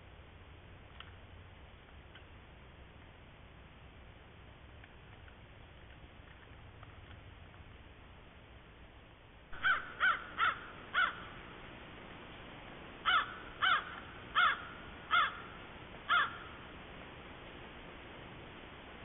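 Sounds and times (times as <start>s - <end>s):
crow cawing: 9.6s - 11.4s, 13.0s - 16.6s.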